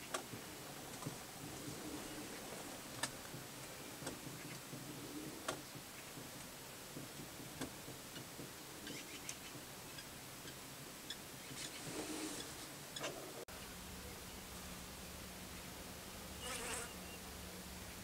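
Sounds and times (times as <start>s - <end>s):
faint irregular clicks: 0.0s - 11.9s
low steady hiss: 0.0s - 18.0s.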